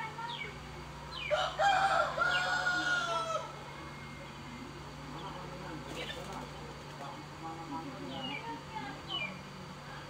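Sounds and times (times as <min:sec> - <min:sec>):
rooster crowing: 0:01.3 - 0:03.6.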